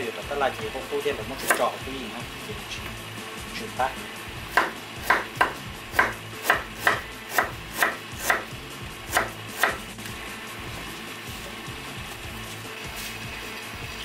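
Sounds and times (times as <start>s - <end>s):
knife chopping on wooden board: 1.4s - 1.7s, 4.5s - 8.5s, 9.1s - 9.8s.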